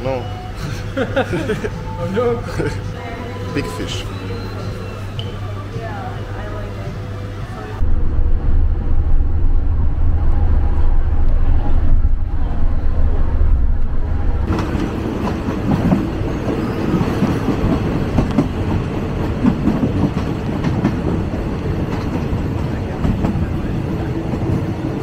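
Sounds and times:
vehicle engine and road rumble: 7.0 - 25.0
train wheels clattering on rails: 14.5 - 25.0.

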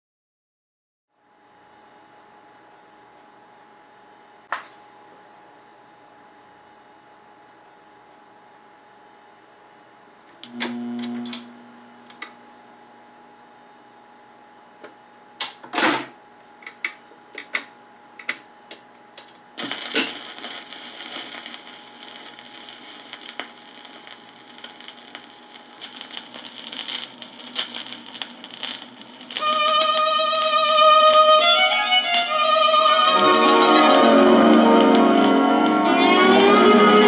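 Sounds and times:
crackly record surface noise: 1.2 - 37.0
turntable hum: 9.8 - 15.7, 16.4 - 37.0.

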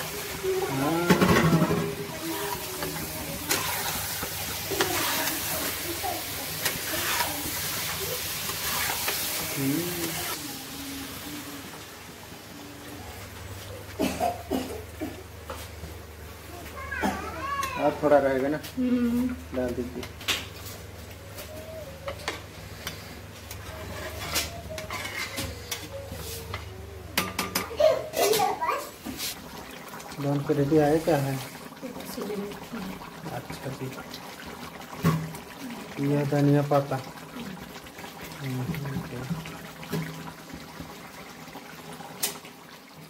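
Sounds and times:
curry bubbling in a pot: 0.0 - 11.8, 22.1 - 43.0
metal spatula scraping pan: 1.1 - 2.0, 6.6 - 7.6, 8.4 - 9.4, 23.6 - 26.6.

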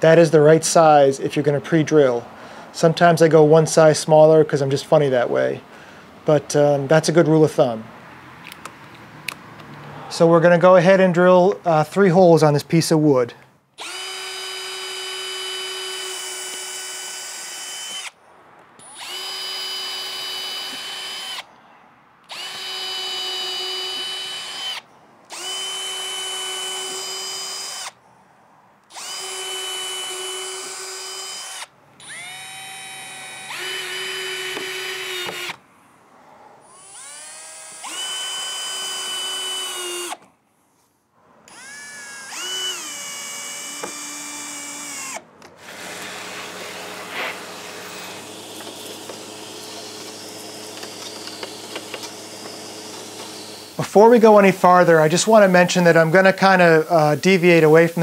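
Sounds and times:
cordless drill whining: 13.8 - 18.2, 18.8 - 21.5, 22.2 - 28.0, 28.8 - 35.6, 36.6 - 40.3, 41.5 - 58.0.

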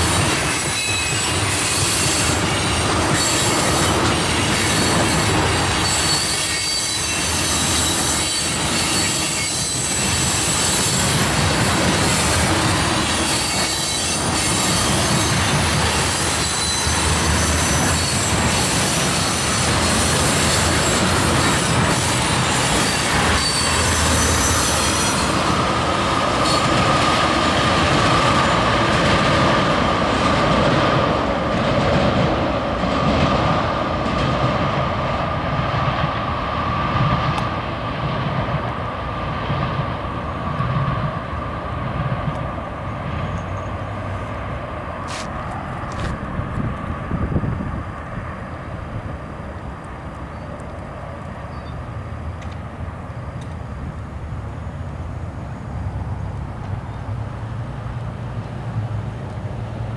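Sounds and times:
train wheels rumbling on rails: 0.0 - 59.9
high-pitched wheel squeal: 0.3 - 11.2, 13.0 - 25.5
low wheel squeal: 0.4 - 2.4, 3.1 - 11.2, 13.1 - 25.5.

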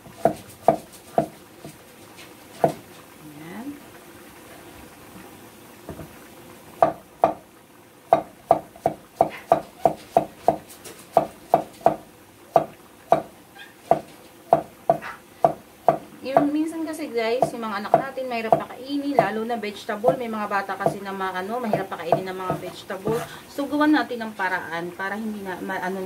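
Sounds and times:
knife knocking on cutting board: 6.8 - 7.4, 8.1 - 12.0, 12.6 - 13.3, 13.9 - 16.5.

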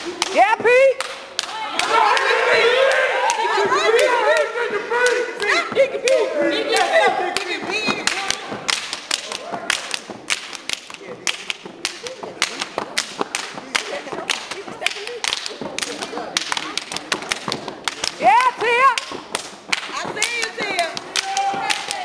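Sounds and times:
hand claps: 0.0 - 0.4, 1.0 - 2.3, 2.9 - 22.0
foot stomps: 5.4 - 22.0.

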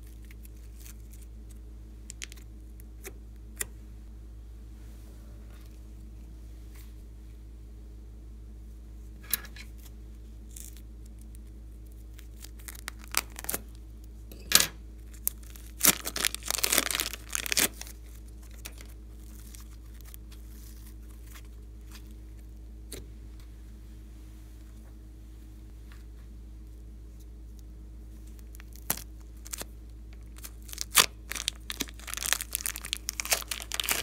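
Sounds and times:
plastic bag crinkling and tearing: 0.0 - 1.3, 11.9 - 13.8, 15.1 - 22.1, 28.4 - 34.0.

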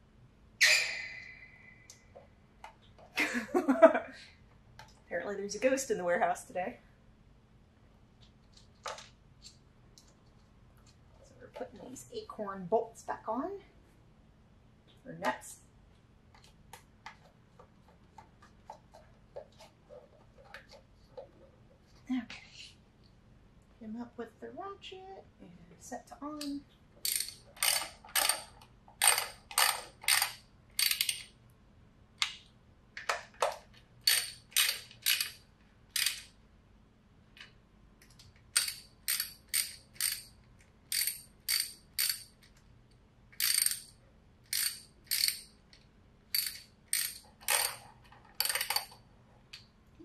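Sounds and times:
hand ratchet clicking: 27.0 - 31.3, 34.0 - 35.4, 36.0 - 36.3, 38.5 - 42.5, 43.4 - 43.9, 44.5 - 45.5, 46.3 - 47.8, 48.4 - 48.9.

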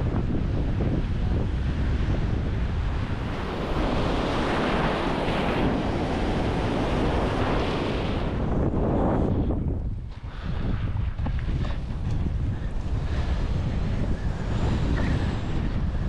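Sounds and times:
wind buffeting microphone: 0.0 - 16.0
breaking surf: 2.6 - 8.8.

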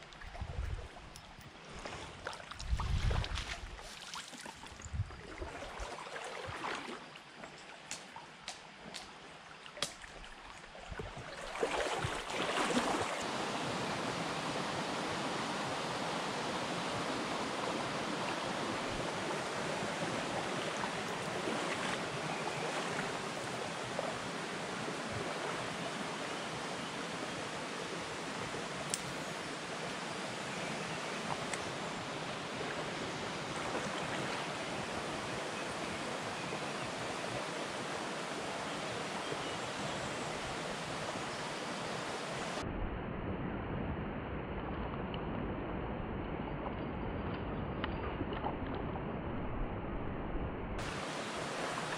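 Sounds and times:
river water rushing: 5.3 - 42.6, 50.8 - 51.9.

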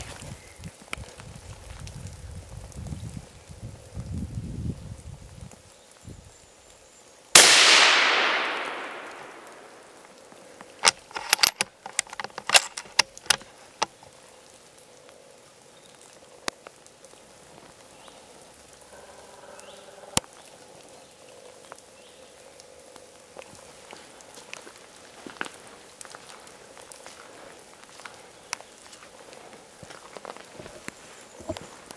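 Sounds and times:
rifle shot: 7.4 - 10.0
sharp clicks and knocks: 10.6 - 13.9.

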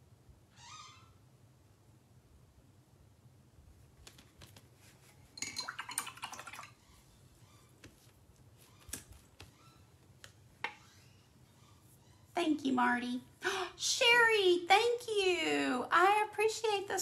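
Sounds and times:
painting supplies tapping and clicking: 4.0 - 4.7.

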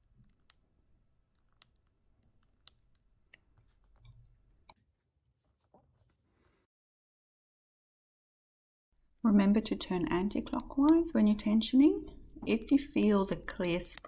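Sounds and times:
soft handling noise: 0.0 - 6.7
plastic tensioning tool clicks: 10.2 - 11.1, 12.4 - 14.0.

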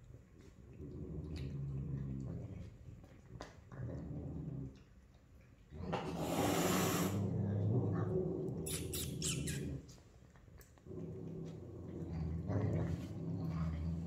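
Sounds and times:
cat growling low: 0.7 - 4.8, 5.7 - 9.9, 10.8 - 14.0
cat hissing: 6.1 - 7.2, 8.6 - 9.8.

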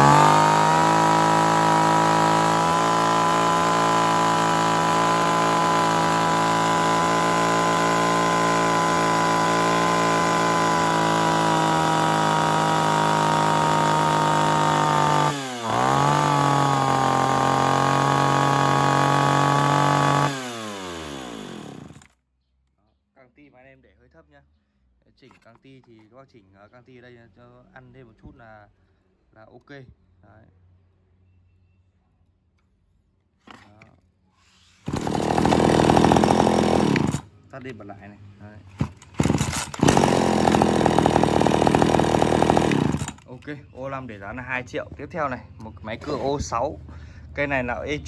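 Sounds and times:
chainsaw revving: 0.0 - 22.1, 34.8 - 37.3, 38.8 - 43.3.

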